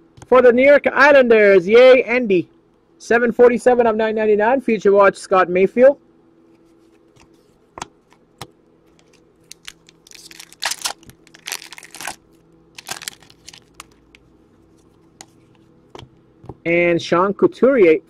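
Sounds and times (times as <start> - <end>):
cards rustling and snapping: 6.9 - 14.3
trading cards clicking: 8.9 - 12.2.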